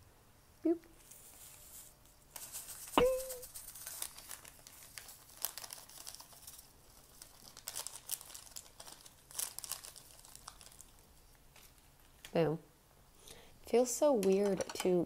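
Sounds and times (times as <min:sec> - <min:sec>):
plastic sachet crinkling: 0:01.2 - 0:12.3
sharp knock with ringing tone: 0:03.0 - 0:03.4.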